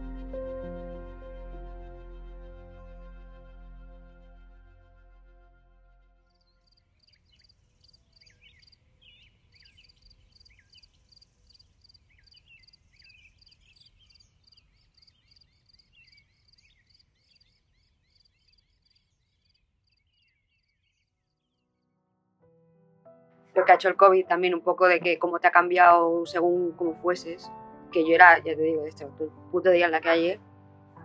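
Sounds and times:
insect chirping: 6.6s - 21.4s
birds chirping: 6.6s - 21.6s.

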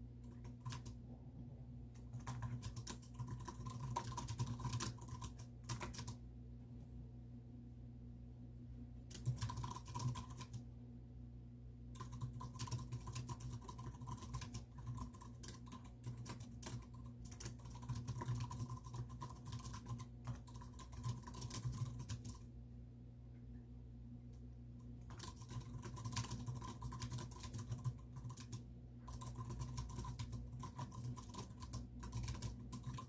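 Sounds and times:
typing on computer keyboard: 0.2s - 1.0s, 2.0s - 6.2s, 9.1s - 10.6s, 11.9s - 22.4s, 25.0s - 33.0s.

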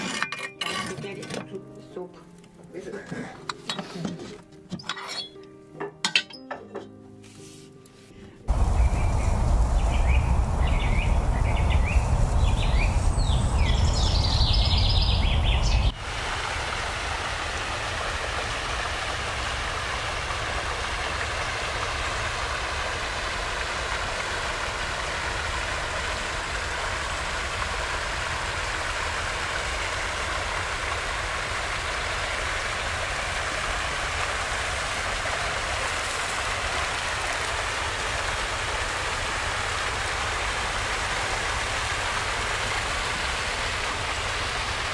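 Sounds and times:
low rumble: 8.5s - 31.7s
river water rushing over weir: 15.9s - 44.9s.

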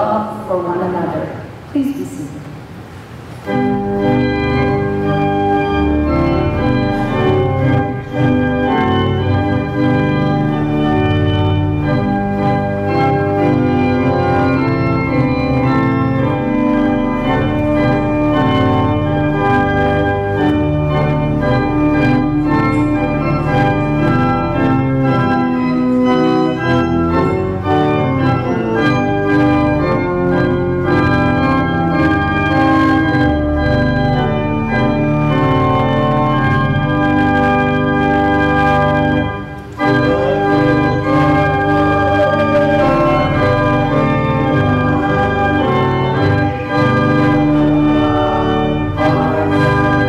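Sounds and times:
person speaking: 0.0s - 2.6s, 39.6s - 47.0s
church organ chords: 3.4s - 50.0s.

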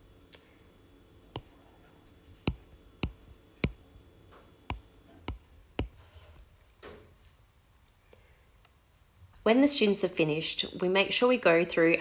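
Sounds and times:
stylus tapping on glass screen: 2.4s - 3.8s, 4.7s - 6.0s.

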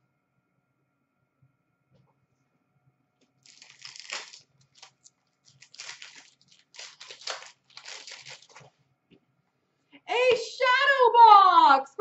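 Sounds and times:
foil wrapper crinkling and tearing: 3.4s - 8.7s.

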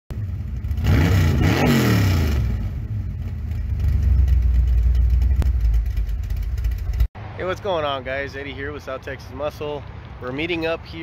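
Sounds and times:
car engine revving: 0.1s - 7.1s
car engine idling: 2.3s - 7.1s.

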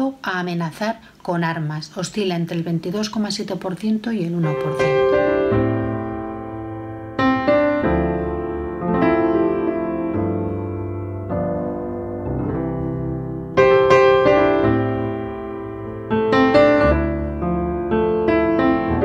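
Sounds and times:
slow piano chords: 4.4s - 19.0s.

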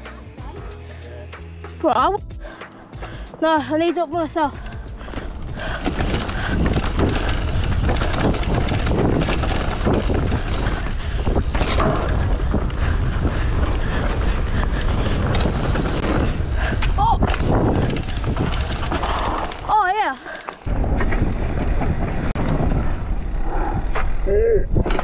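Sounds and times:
bike tyres rolling on dirt: 2.5s - 25.0s
bike knocks and rattles: 4.4s - 23.2s
wind buffeting microphone: 4.6s - 19.8s.

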